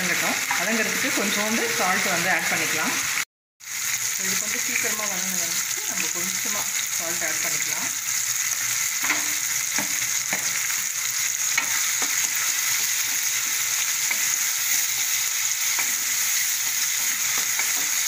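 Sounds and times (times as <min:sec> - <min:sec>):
food sizzling in oil: 0:00.0 - 0:18.0
wooden spatula knocking a pan: 0:09.0 - 0:10.6.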